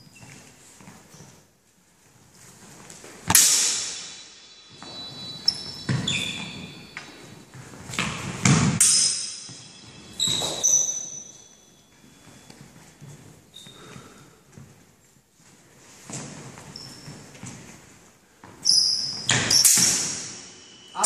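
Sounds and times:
swords clashing: 0:03.3 - 0:06.5, 0:08.5 - 0:10.9, 0:19.3 - 0:21.0.

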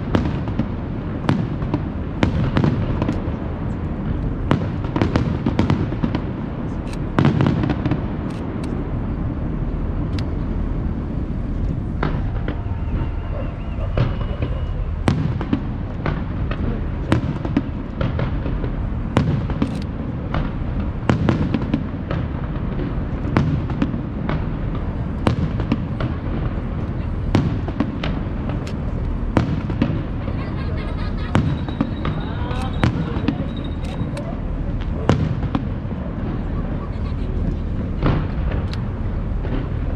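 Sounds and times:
steady low rumble: 0:00.0 - 0:39.9
firework shells bursting: 0:11.5 - 0:36.5.

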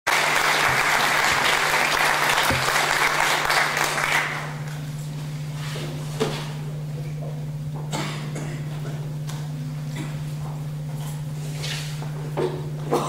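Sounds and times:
audience applauding: 0:00.1 - 0:04.6
steady low hum: 0:00.1 - 0:13.0.

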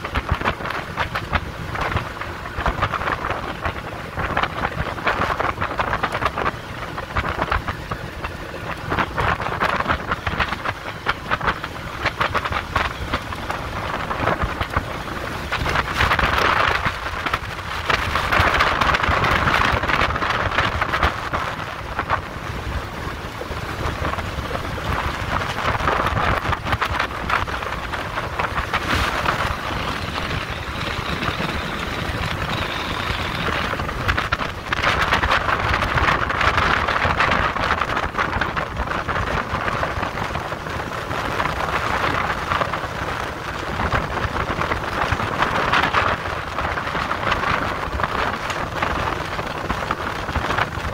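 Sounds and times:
water around boat hull: 0:00.0 - 0:50.9
wind rushing on microphone: 0:00.0 - 0:50.9
dense crackling: 0:23.4 - 0:39.5.

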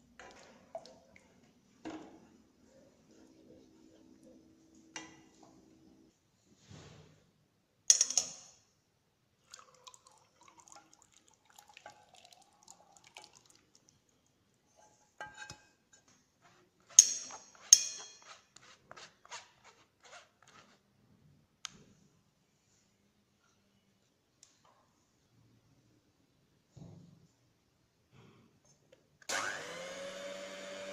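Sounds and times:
metal sieve clinking on bowl: 0:16.9 - 0:18.3.

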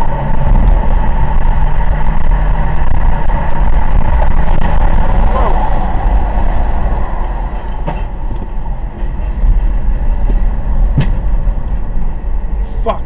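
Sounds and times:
car cabin road rumble: 0:00.0 - 0:13.0
sharp knock: 0:11.0 - 0:11.2.

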